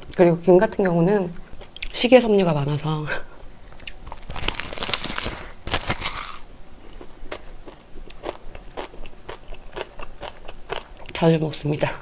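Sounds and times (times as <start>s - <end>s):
crisp seaweed crackle: 4.1s - 6.5s.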